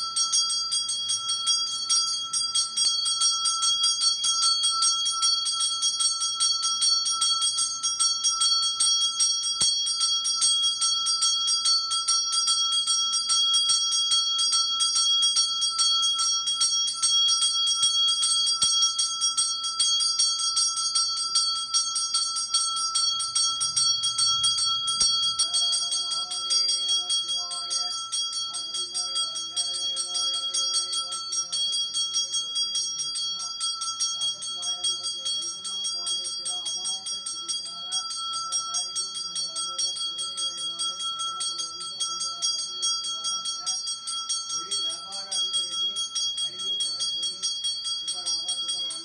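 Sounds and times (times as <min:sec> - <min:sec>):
brass bell ringing rapidly: 0:00.0 - 0:49.0.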